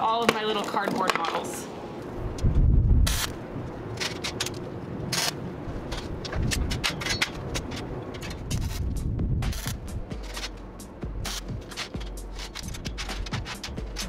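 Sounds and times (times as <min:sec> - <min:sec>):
hard objects clicking and knocking: 0:11.3 - 0:14.0.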